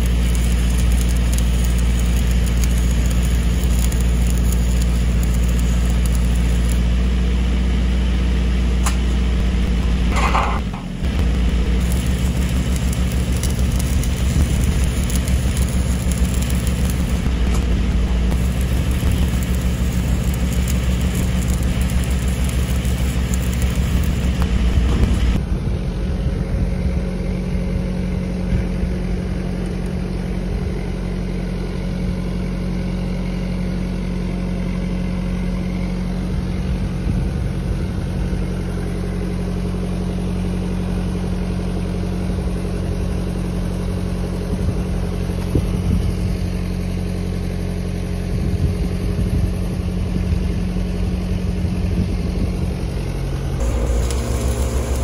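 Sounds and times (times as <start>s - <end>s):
welding arc crackle: 0.0s - 25.4s, 53.1s - 55.0s
engine-driven welder running: 0.0s - 55.0s.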